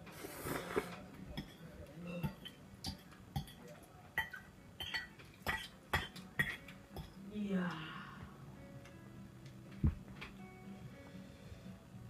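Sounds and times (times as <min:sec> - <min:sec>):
fork clinking against ceramic bowl: 0:01.4 - 0:03.6, 0:04.2 - 0:07.1.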